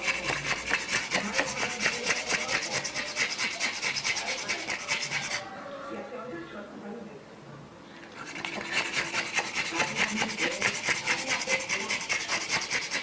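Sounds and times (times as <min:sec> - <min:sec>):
dog panting: 0:00.0 - 0:05.5, 0:08.1 - 0:13.0.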